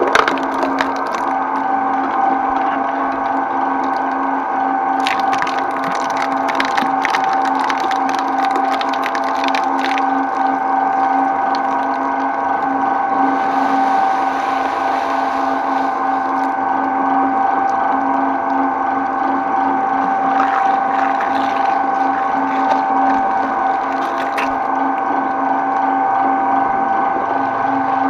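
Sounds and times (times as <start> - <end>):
shredder cutters crunching: 0.0 - 4.2, 5.0 - 16.6, 19.8 - 24.8
shredder motor humming: 0.0 - 28.0.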